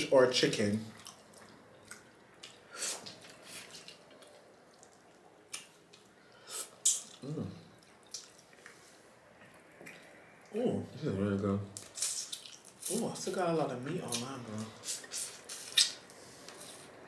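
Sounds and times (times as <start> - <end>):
lip smacks and finger-sucking: 15.0 - 16.7.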